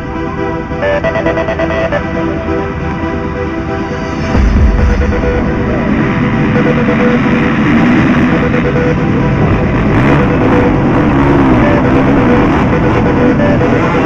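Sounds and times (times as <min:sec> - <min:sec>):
rock music: 0:00.0 - 0:14.0
motocross bikes revving: 0:05.0 - 0:14.0.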